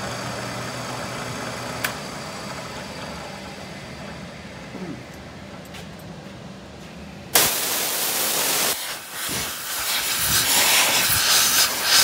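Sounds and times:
compressed air blow gun hissing: 7.4 - 12.0.

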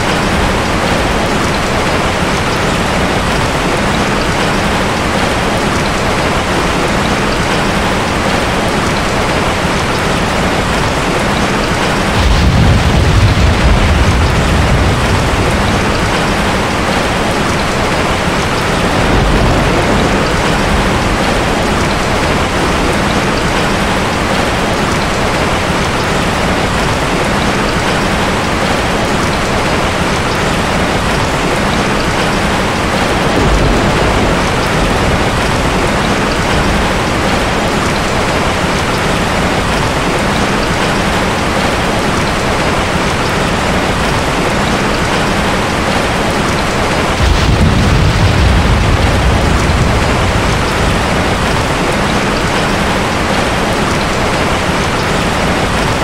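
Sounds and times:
steady rain: 0.0 - 56.0
thunder rumbling: 0.0 - 56.0.

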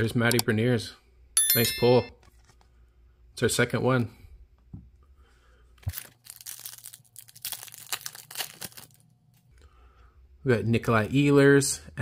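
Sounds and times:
foil wrapper tearing and crinkling: 5.9 - 9.4.

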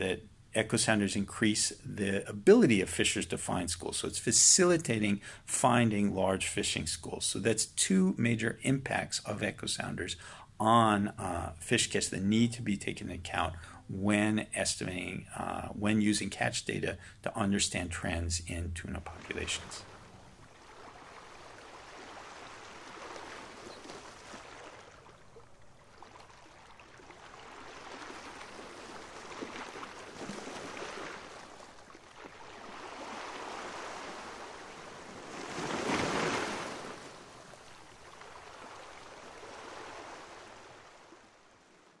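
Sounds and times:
waves washing onto beach: 19.1 - 42.0.

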